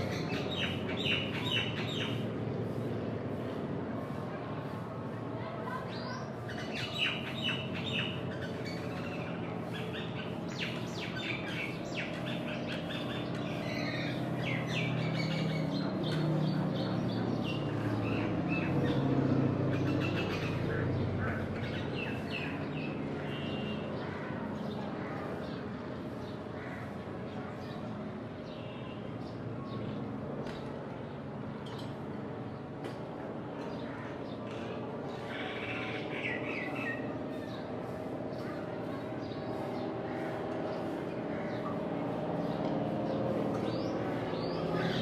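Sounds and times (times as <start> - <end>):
birds chirping and squawking: 0.0 - 4.8, 5.7 - 30.7, 33.5 - 45.0
distant aircraft engine rumble: 30.0 - 45.0.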